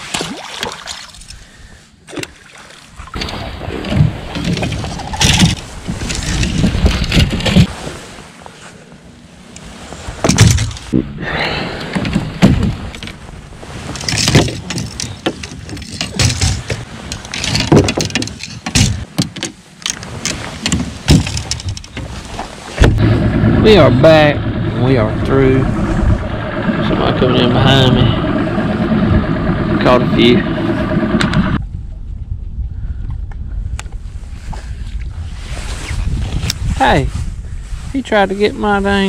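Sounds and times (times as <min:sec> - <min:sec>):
fishing rods knocking and rattling: 0:03.2 - 0:07.7, 0:10.2 - 0:11.0, 0:13.8 - 0:23.0
rustling handling noise: 0:12.7 - 0:22.8.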